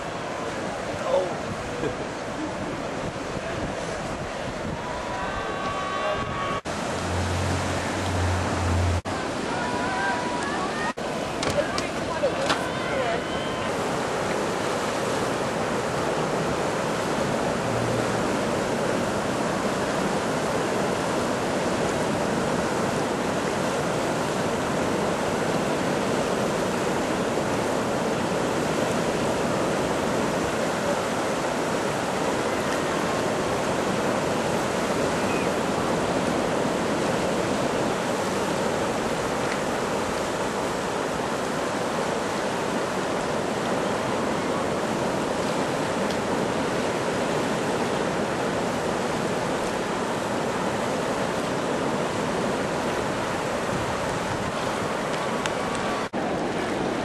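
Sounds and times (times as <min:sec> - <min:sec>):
river rapids rushing: 0:00.0 - 0:57.0.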